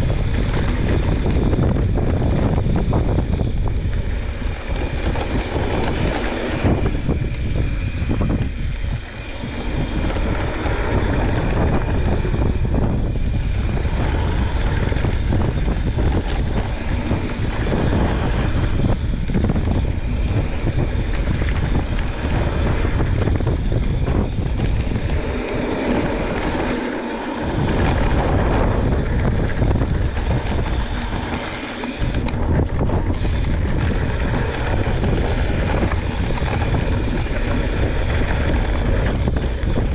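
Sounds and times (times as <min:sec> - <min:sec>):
bike rattling: 0:00.0 - 0:39.9
tyre noise on dirt trail: 0:00.0 - 0:39.9
wind buffeting microphone: 0:00.0 - 0:39.9.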